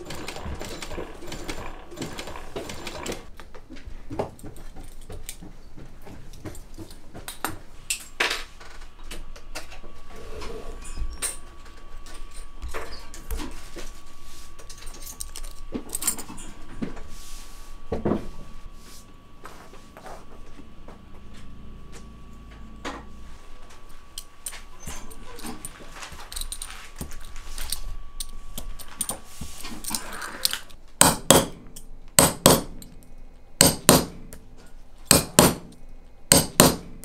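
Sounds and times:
sewing machine stitching: 0.0 - 3.3.

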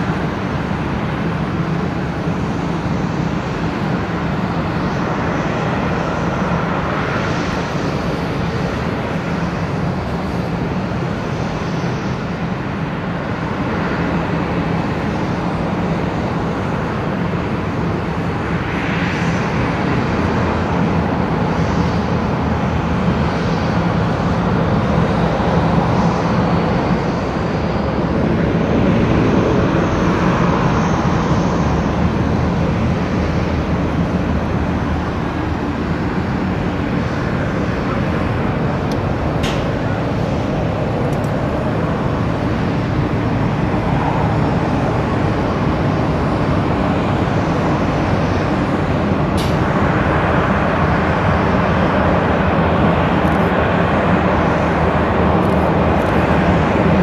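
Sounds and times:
propeller aircraft engines droning: 0.0 - 57.0.

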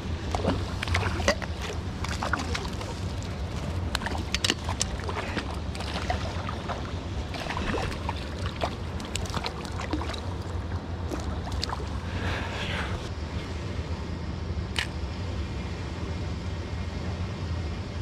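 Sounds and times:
river water flowing: 0.0 - 12.8
small clicks and splashes: 0.2 - 12.0.

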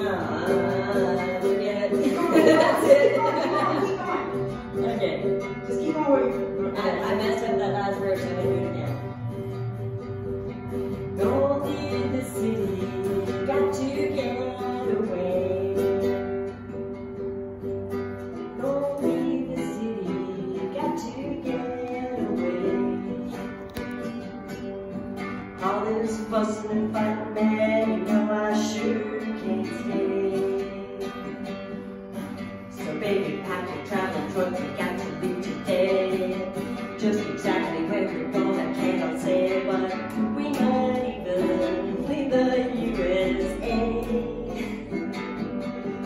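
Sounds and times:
person singing: 0.0 - 10.1, 10.7 - 16.6, 18.4 - 24.4, 25.3 - 46.0
acoustic guitar playing: 0.0 - 46.0.

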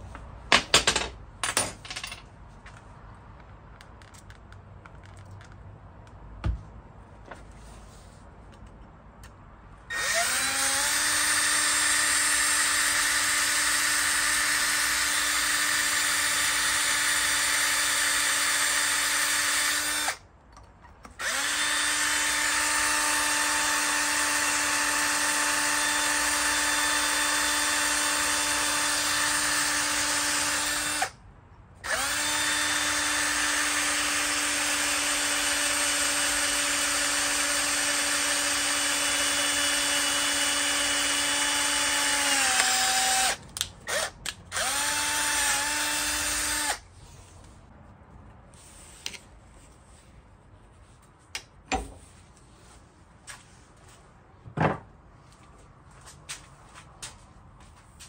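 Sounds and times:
electric drill boring into metal: 9.9 - 20.2, 21.2 - 31.1, 31.8 - 46.8.

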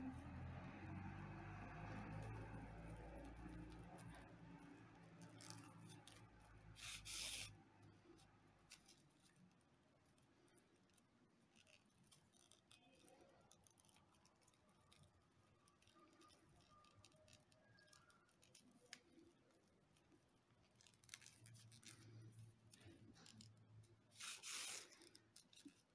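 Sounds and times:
paper rope rustling: 1.9 - 25.9.

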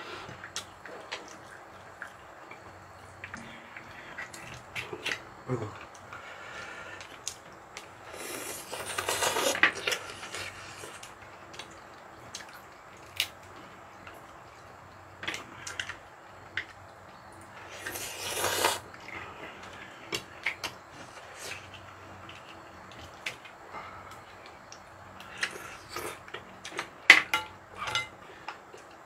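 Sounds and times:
noisy slurping of noodles: 8.0 - 11.0, 17.6 - 19.1
person chewing: 8.1 - 11.7, 17.8 - 18.9, 25.2 - 26.8.

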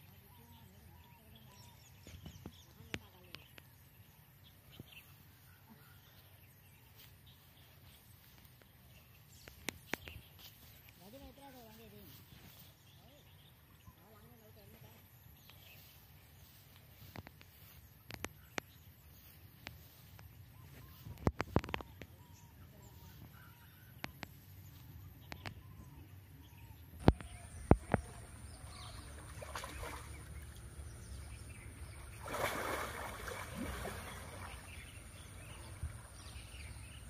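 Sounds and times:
faint bird chirps: 0.0 - 37.0
water sloshing and splashing: 27.1 - 36.7.

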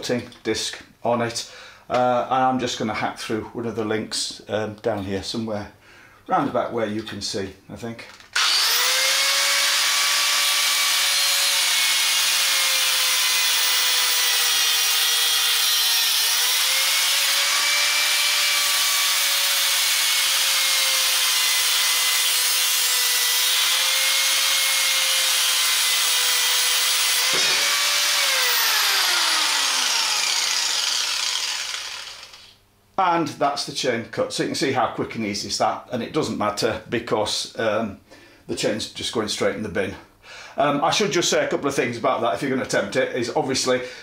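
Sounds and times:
angle grinder whining: 8.4 - 32.6.

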